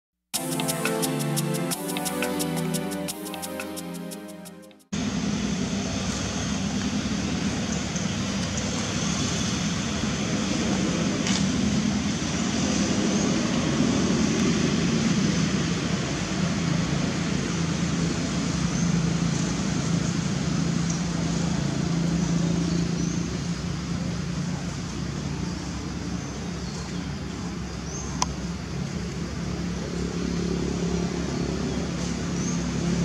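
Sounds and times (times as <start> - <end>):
road traffic engine hum: 4.9 - 33.0.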